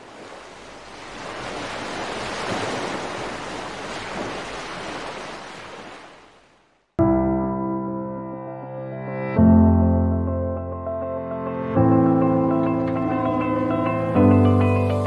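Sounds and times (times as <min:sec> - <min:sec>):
waves breaking in surf: 0:00.0 - 0:06.9
sustained music chord: 0:07.0 - 0:15.0.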